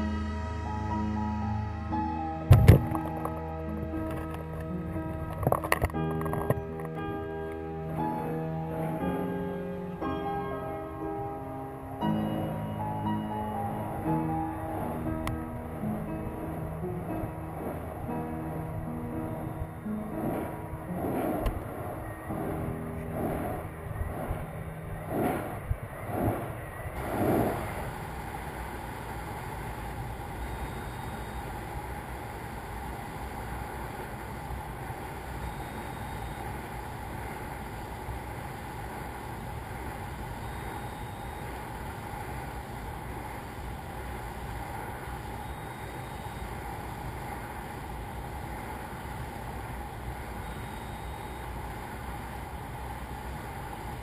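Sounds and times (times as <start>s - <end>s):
steady rushing noise: 0.0s - 54.0s
faint short tone: 30.4s - 31.6s, 35.4s - 36.5s, 40.4s - 41.6s, 45.4s - 46.6s, 50.4s - 51.6s.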